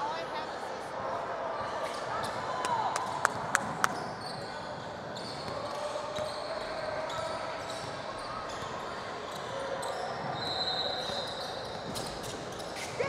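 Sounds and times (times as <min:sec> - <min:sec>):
court noise: 0:00.9 - 0:13.0
shoe squeak: 0:03.6 - 0:13.0.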